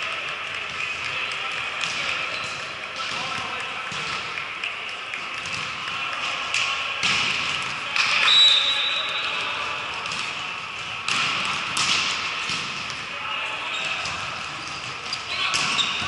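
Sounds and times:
indistinct chatter: 0.0 - 16.0
referee's whistle blast: 8.2 - 9.3.

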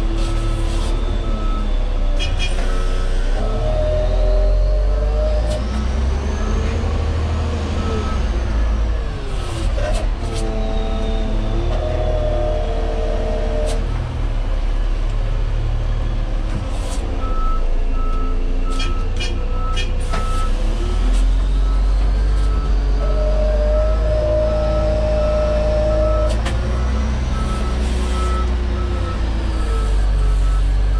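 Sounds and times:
diesel engine revving: 0.0 - 30.9
reversing alarm beeping: 0.1 - 2.0, 2.7 - 9.5, 17.2 - 30.9.

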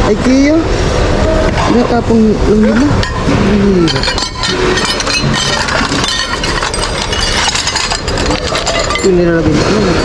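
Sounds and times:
glass and ceramic dishes clinking: 2.7 - 10.0.

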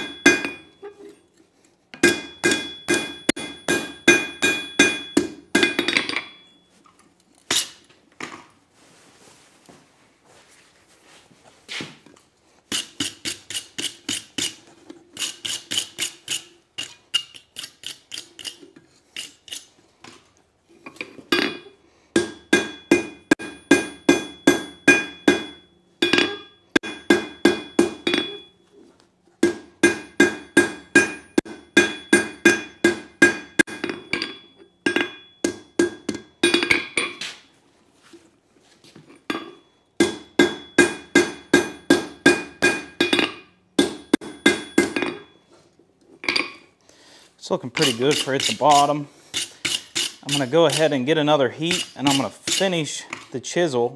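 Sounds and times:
hammer striking steel on anvil: 0.0 - 0.8, 2.0 - 6.5, 12.7 - 14.6, 21.4 - 28.6, 29.4 - 37.2, 39.3 - 45.4, 47.8 - 52.9.

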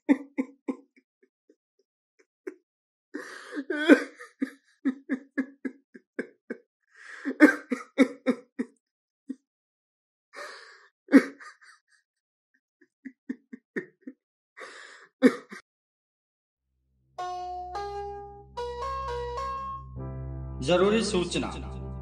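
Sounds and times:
gasping in-breath: 3.2 - 3.8, 6.9 - 7.4, 10.4 - 10.9, 14.6 - 15.2
man sobbing: 3.2 - 6.6, 7.2 - 8.7, 11.1 - 11.8.

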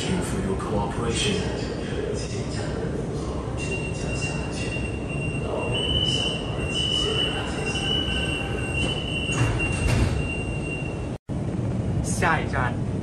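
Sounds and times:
low hum of stopped train: 0.0 - 13.0
door-closing warning tone: 3.6 - 11.2
train doors sliding shut: 5.7 - 11.1.

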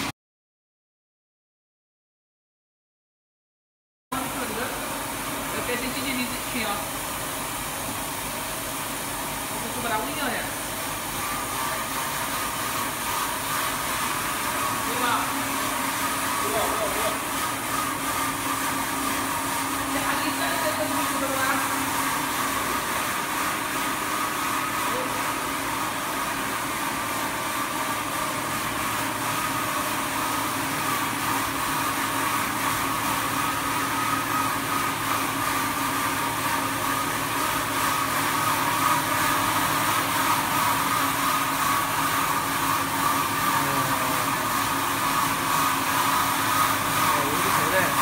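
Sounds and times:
deburring machine humming and whining: 4.2 - 48.0.

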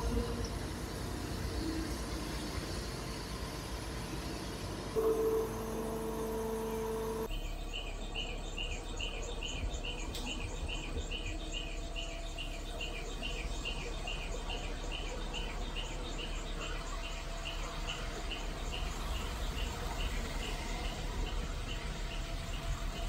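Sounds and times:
crane engine rumbling: 0.0 - 23.0
steady humming tone: 4.9 - 23.0.

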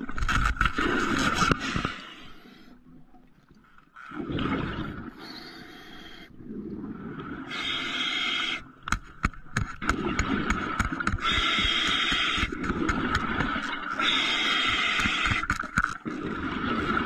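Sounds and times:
exhaled air bubbling underwater: 0.0 - 17.0
hissing inhalation: 7.5 - 8.6
sharp clicks and knocks: 8.8 - 13.7.

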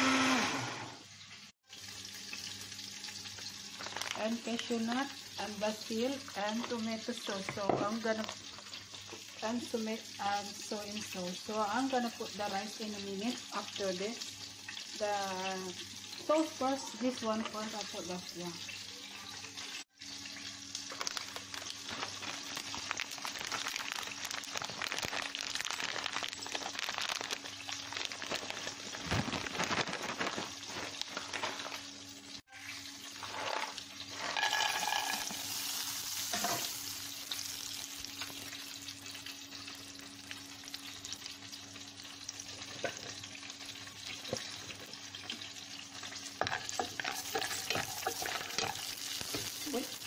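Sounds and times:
hot oil sizzling in frying pan: 1.0 - 50.0.

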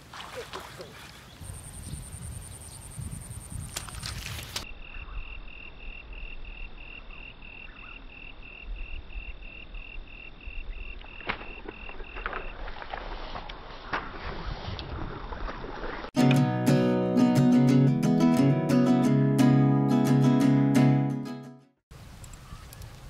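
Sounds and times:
low wind rumble: 1.3 - 4.2
insect trill: 1.4 - 12.8.

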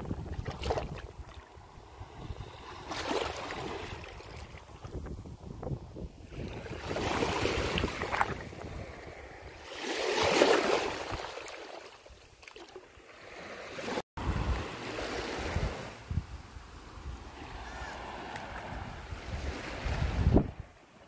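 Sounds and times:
small ocean waves washing: 0.0 - 5.1, 6.1 - 21.0
wind rumble on microphone: 0.0 - 9.7, 14.2 - 21.0.

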